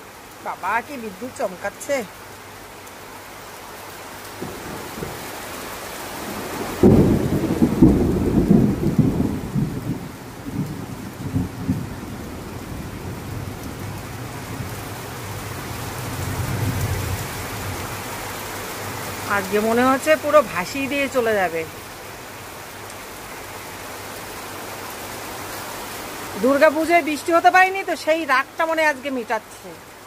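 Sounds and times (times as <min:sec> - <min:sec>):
torrential rain pouring: 0:00.0 - 0:30.0
thunder rumbling: 0:04.4 - 0:05.3, 0:06.1 - 0:17.9.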